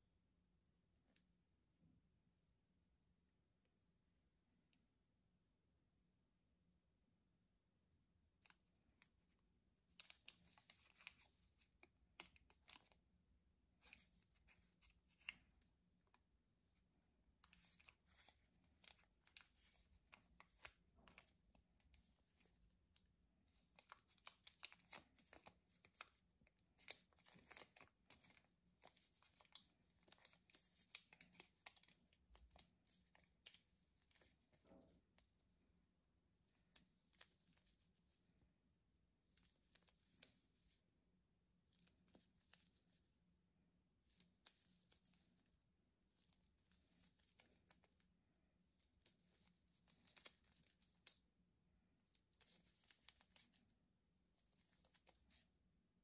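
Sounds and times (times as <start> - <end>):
candy wrapper crinkling and tearing: 17.4 - 22.5, 23.5 - 34.6.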